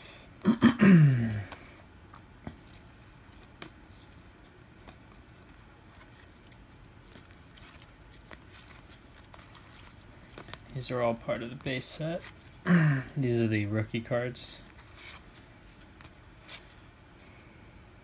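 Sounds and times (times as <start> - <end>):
trading cards rustling: 2.1 - 17.2.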